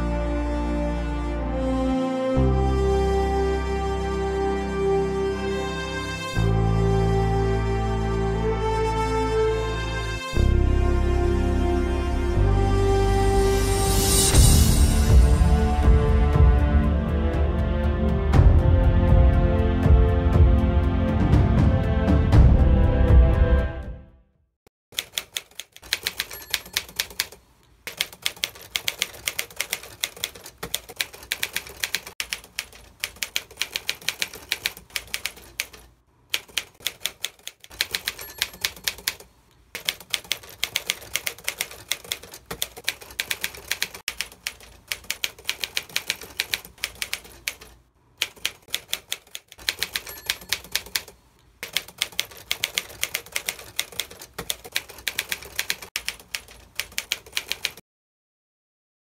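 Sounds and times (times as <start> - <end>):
typewriter key clicks: 39.8 - 57.8.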